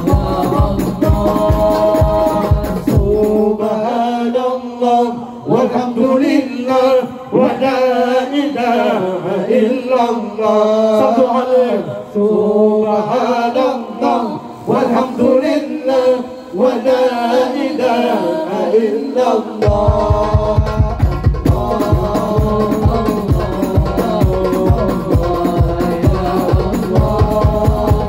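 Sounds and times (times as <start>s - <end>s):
frame drums and bass drum: 0.0s - 3.6s, 19.6s - 28.0s
men singing through microphones: 0.0s - 28.0s.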